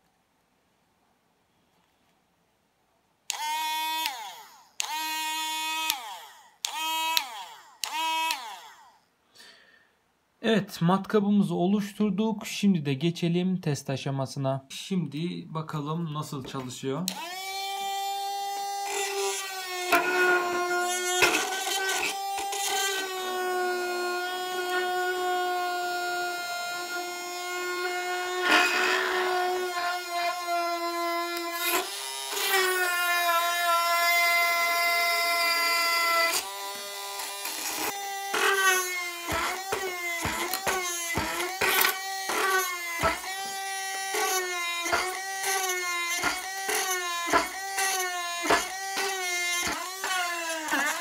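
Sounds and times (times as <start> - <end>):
drill motor whining: 3.3 - 8.9, 17.1 - 51.0
drill bit scraping material: 17.1 - 51.0.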